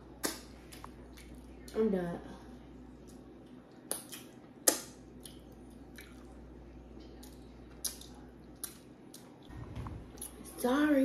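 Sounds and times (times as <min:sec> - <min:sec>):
wet lip smacks: 0:03.1 - 0:06.2.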